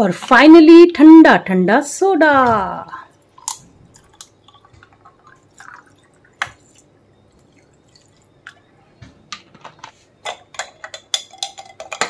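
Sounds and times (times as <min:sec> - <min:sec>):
soda water fizzing: 0:03.4 - 0:08.6
drips and ticks: 0:03.9 - 0:08.6.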